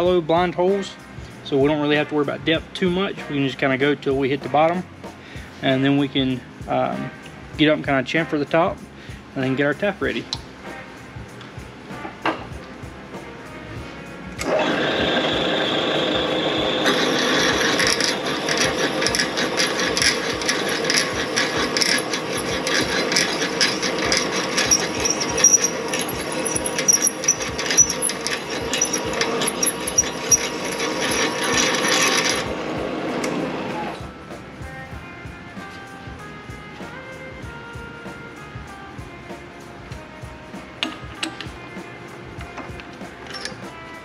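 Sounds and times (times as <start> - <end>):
drill bit cutting crackle: 14.4 - 34.0
milling machine spindle whine: 14.4 - 34.2.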